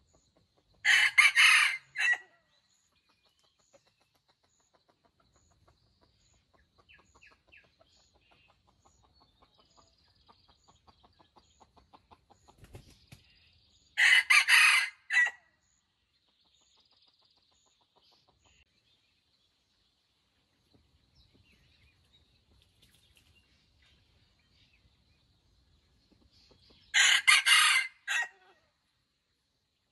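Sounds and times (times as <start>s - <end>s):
soft rhythmic clucks: 0.0s - 0.9s, 2.1s - 13.8s, 16.0s - 18.9s, 25.6s - 27.0s
rooster crowing: 0.9s - 2.2s, 14.0s - 15.4s, 27.0s - 28.4s.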